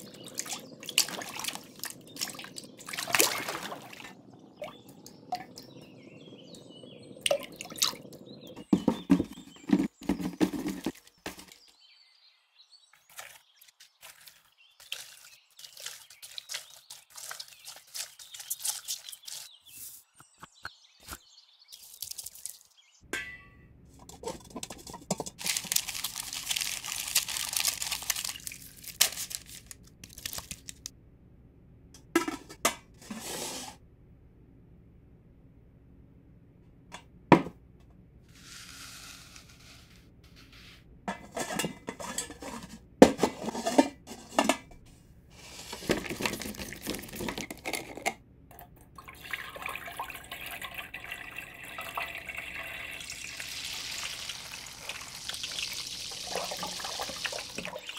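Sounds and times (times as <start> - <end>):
water sloshing in a pot: 0.0 - 11.6, 13.0 - 19.5, 23.2 - 27.1, 41.1 - 44.8, 45.4 - 57.9
potato masher squishing: 14.0 - 19.5.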